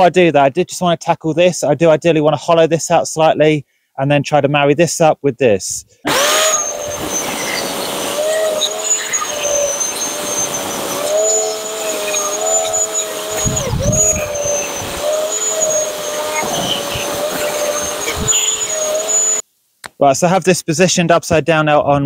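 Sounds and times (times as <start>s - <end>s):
electric chainsaw cutting wood: 6.1s - 19.4s.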